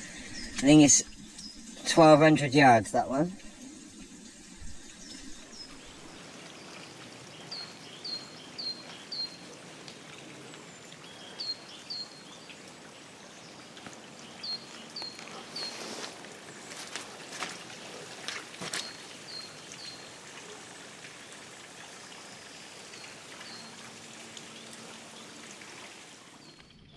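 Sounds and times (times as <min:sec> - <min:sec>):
trickling water: 0:00.0 - 0:26.9
songbird calling: 0:05.0 - 0:09.5, 0:13.4 - 0:16.1.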